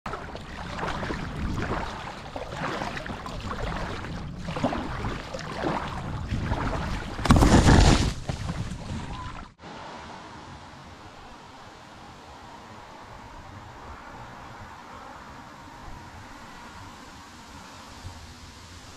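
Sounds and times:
small waves lapping: 0.1s - 18.9s
wind buffeting the microphone: 0.3s - 9.4s.

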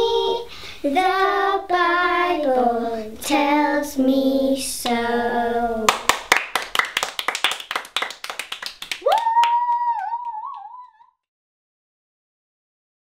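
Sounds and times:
children clapping: 5.9s - 10.9s
high voice cheering woo: 9.0s - 11.1s.

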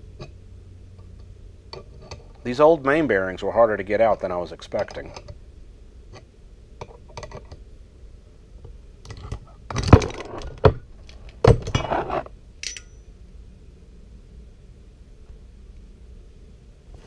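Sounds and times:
ringing metal clink: 12.6s - 13.1s.

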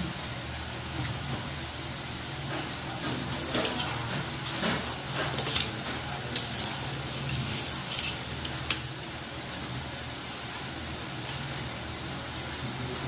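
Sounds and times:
steady low hum: 0.0s - 13.0s
chewing: 3.5s - 8.6s.

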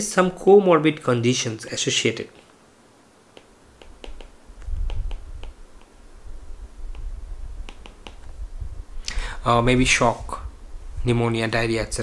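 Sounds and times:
stylus tapping on a screen: 3.3s - 6.0s, 6.9s - 8.3s.

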